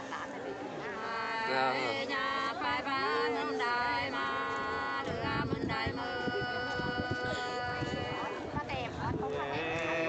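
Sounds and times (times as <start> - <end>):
two voices singing unaccompanied: 0.9 - 8.4.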